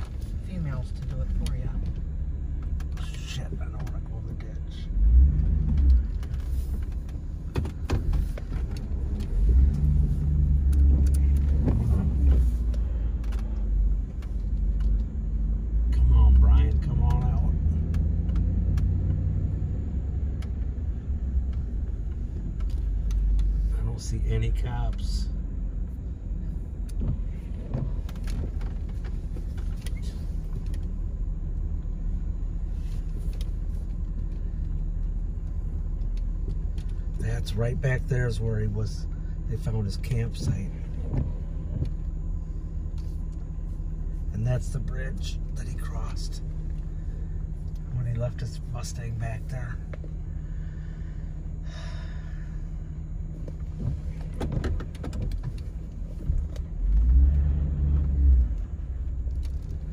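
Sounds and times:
car engine and tyre rumble: 0.0 - 59.9
faint clicks and knocks: 10.6 - 15.2.

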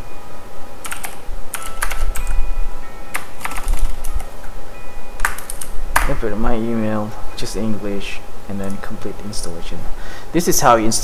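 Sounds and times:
keyboard key clicks: 5.2 - 6.2.

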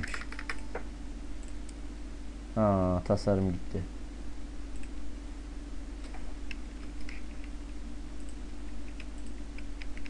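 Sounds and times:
keyboard and mouse clicks: 0.0 - 0.6, 6.0 - 7.6, 8.2 - 10.0
low electrical hum: 0.0 - 10.0.

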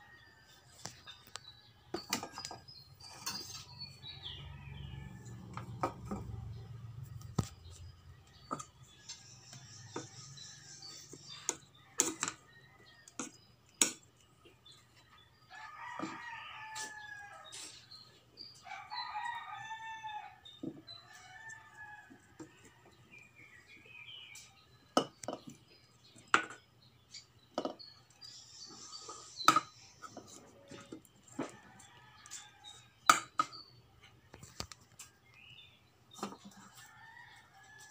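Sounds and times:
rooster crowing: 15.5 - 17.7, 18.6 - 22.8.

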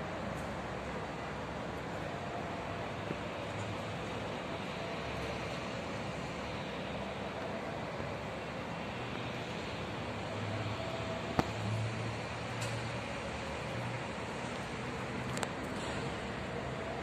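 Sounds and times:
construction site din: 0.0 - 17.0.

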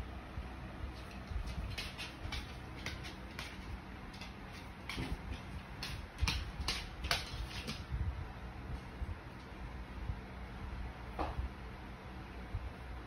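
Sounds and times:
dog claws clicking on wood floor: 1.0 - 7.9.

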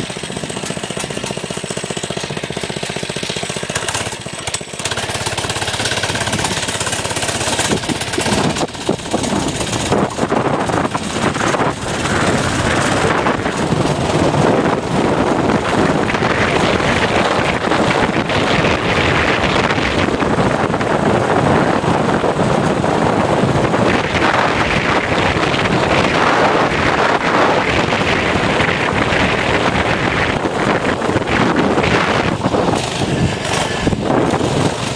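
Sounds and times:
small motorbike engine running: 0.0 - 34.9
wind rushing over microphone: 0.0 - 34.9.

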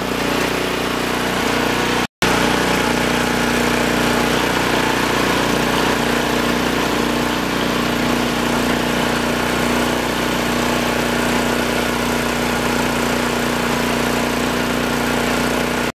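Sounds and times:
small engine running under load: 0.0 - 15.9.

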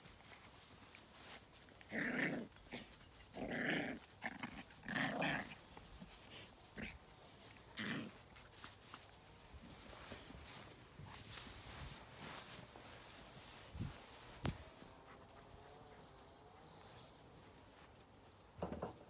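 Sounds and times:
puppy play-growling: 1.7 - 9.1.

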